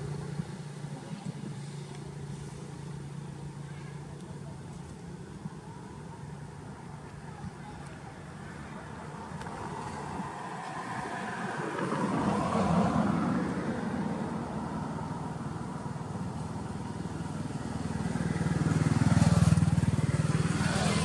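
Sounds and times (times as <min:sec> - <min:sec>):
motorbikes passing: 0:08.0 - 0:21.0.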